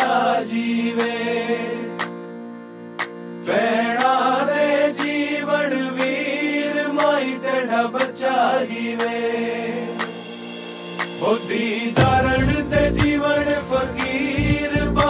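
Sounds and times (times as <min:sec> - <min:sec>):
sustained drone: 0:09.2 - 0:14.8
person singing: 0:11.2 - 0:15.0
light beat: 0:12.0 - 0:13.2, 0:14.0 - 0:15.0.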